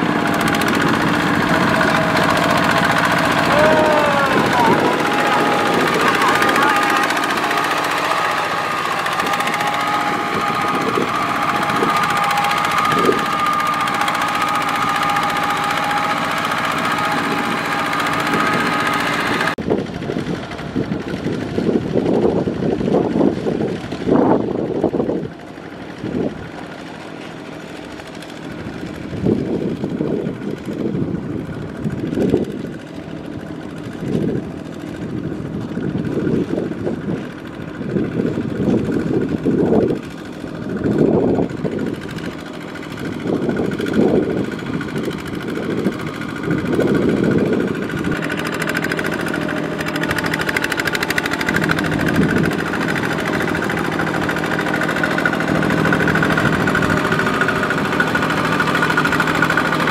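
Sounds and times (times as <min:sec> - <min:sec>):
engine revving up and down: 0:00.0 - 0:19.6, 0:38.2 - 0:59.9
diesel engine running under load: 0:00.0 - 0:59.9.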